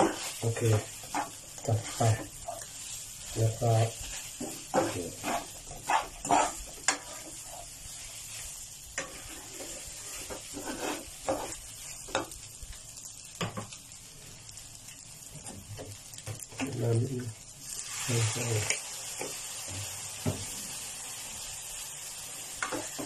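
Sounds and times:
spatula scraping a pan: 0.0 - 12.4
rice sizzling in a pan: 0.0 - 23.0.

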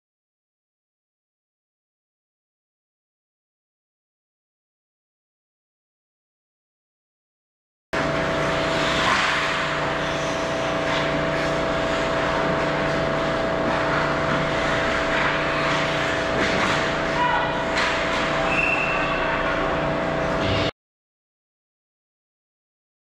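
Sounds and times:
constant mechanical hum: 8.0 - 20.7.

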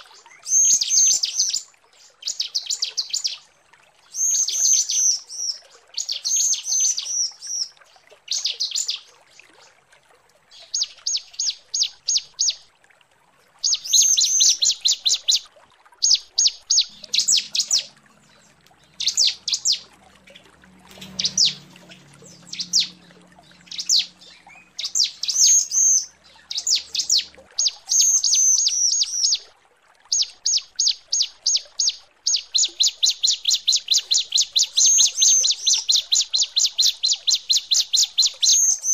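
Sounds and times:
bird high-pitched chipping calls: 13.6 - 15.4, 16.0 - 19.9, 20.9 - 29.4, 30.1 - 38.9.

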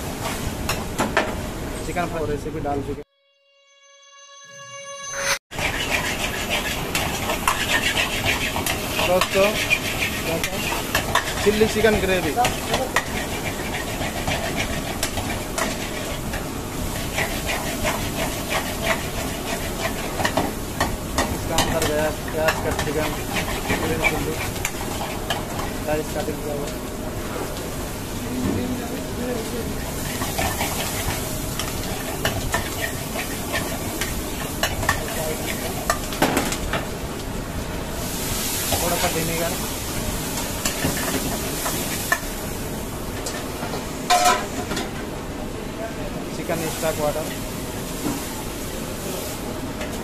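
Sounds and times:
vegetables sizzling in a wok: 0.0 - 2.0, 5.5 - 50.0
metal ladle scraping wok: 3.8 - 11.5
ladle scraping a wok: 4.6 - 20.5, 22.7 - 25.8.

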